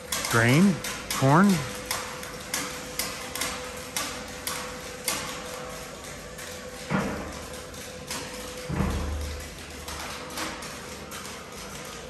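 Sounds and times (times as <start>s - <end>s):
steady hum: 0.0s - 4.0s.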